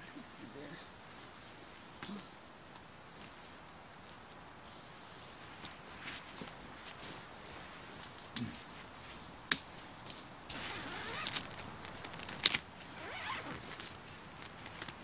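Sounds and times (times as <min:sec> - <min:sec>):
tent fabric rustling: 0:03.1 - 0:15.0.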